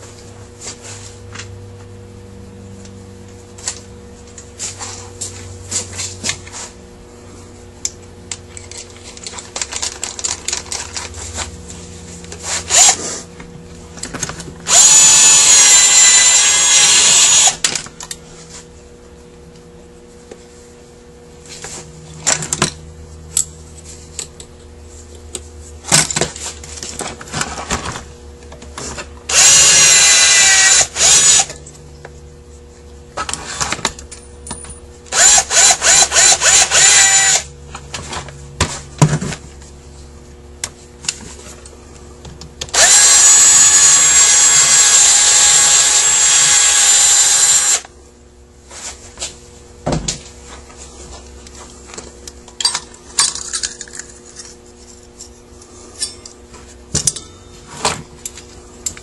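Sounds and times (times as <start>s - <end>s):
electric drill-driver spinning: 12.7s - 13.0s, 14.7s - 17.7s, 29.3s - 31.6s, 35.1s - 37.5s, 42.7s - 47.9s.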